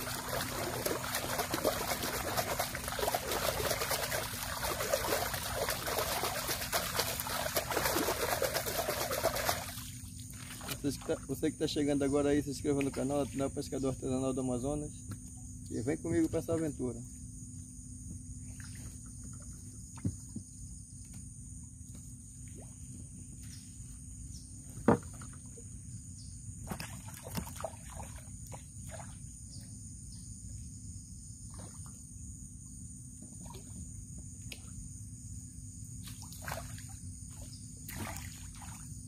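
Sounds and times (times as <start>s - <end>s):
small splashes: 0.0s - 11.4s, 18.4s - 20.4s, 26.6s - 29.3s, 33.4s - 33.8s, 36.0s - 39.0s
high insect chorus: 0.0s - 39.0s
water and boat noise: 0.0s - 39.0s
knocks against boat hull: 24.8s - 25.2s.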